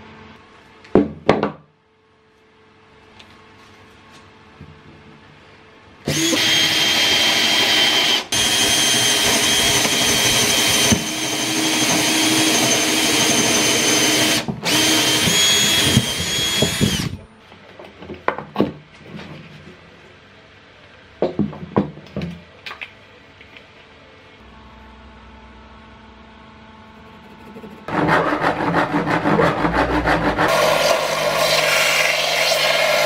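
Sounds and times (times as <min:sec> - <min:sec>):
power drill boring through wood: 0:06.1 - 0:17.2, 0:30.5 - 0:33.0.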